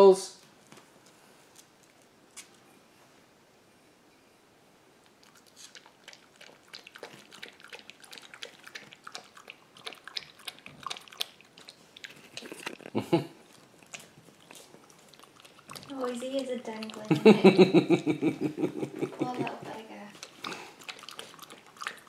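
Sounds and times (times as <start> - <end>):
dog lapping water from bowl: 5.2 - 18.1, 19.2 - 22.0.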